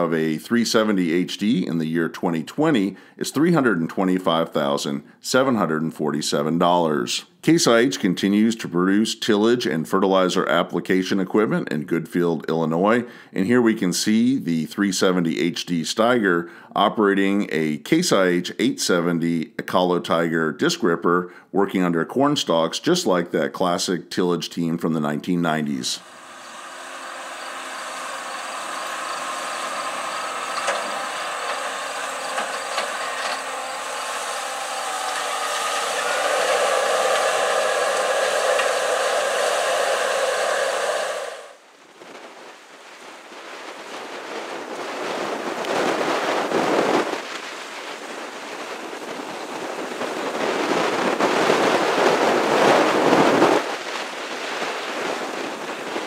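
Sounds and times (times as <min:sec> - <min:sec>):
rushing noise: 0:26.0 - 0:41.6
tractor engine under load: 0:26.0 - 0:41.6
wind gusts on microphone: 0:34.0 - 0:56.0.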